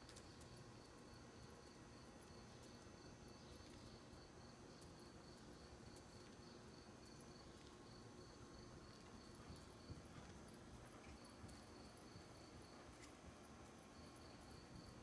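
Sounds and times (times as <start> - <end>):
cricket chirping: 13.7 - 15.0.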